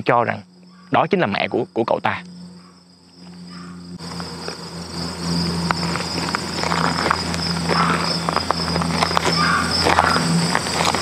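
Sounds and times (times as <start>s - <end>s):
insects chirring: 0.0s - 11.0s
footsteps on dirt road: 3.1s - 11.0s.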